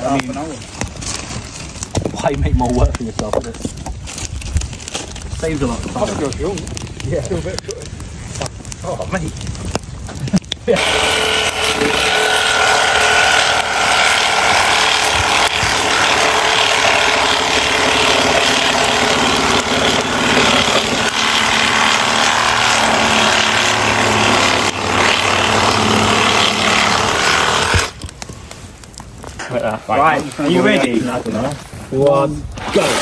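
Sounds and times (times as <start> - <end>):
reciprocating saw cutting log: 10.7 - 28.0, 32.6 - 33.0.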